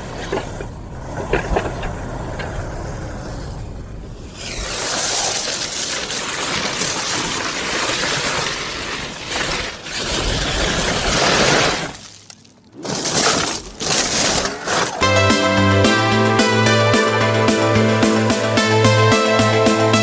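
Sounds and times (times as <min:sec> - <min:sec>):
tyre crunching over stones: 0:05.7 - 0:15.1.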